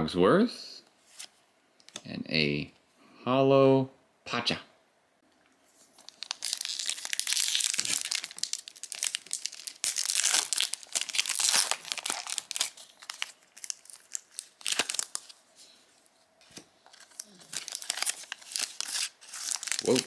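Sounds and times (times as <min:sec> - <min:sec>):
plastic foil wrapper crinkling: 0:05.8 - 0:15.4, 0:16.5 - 0:20.0.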